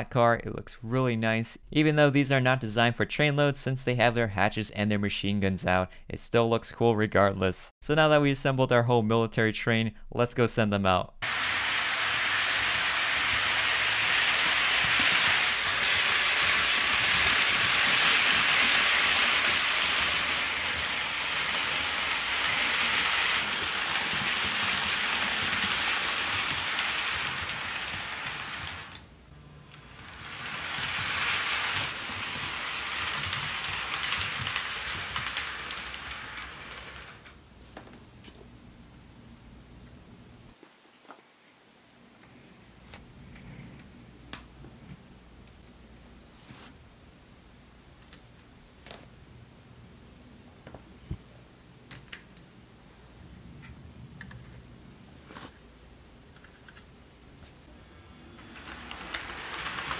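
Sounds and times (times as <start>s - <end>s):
model train wheels rattling: 11.2s - 37.4s, 57.8s - 59.9s.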